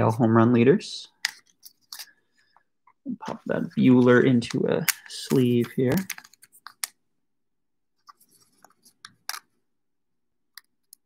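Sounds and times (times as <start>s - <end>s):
plastic sleeve rustling and clicking: 1.2s - 2.2s, 3.2s - 7.0s, 8.0s - 9.6s.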